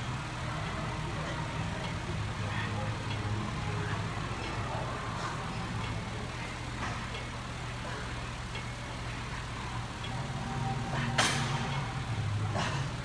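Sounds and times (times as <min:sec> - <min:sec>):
low machine hum: 0:00.0 - 0:13.0
weight stack clicks and clack: 0:11.1 - 0:11.9.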